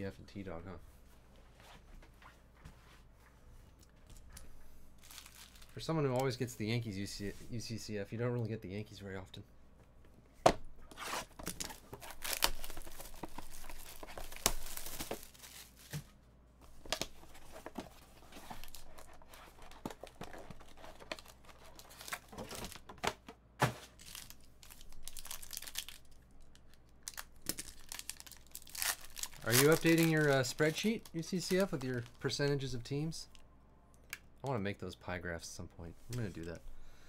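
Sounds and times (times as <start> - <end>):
cardboard packaging rustling and tearing: 5.0 - 5.8, 10.9 - 16.1, 16.8 - 23.0, 23.6 - 26.1, 27.1 - 32.1
foil pack crinkling: 5.0 - 5.8, 11.4 - 16.0, 23.9 - 32.4.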